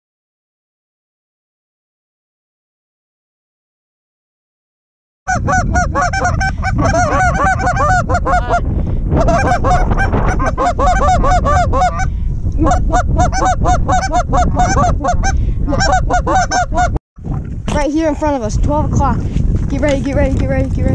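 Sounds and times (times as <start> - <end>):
flock of geese honking: 5.3 - 8.6, 9.2 - 12.1, 12.7 - 16.9
wind rumble on microphone: 5.3 - 20.9.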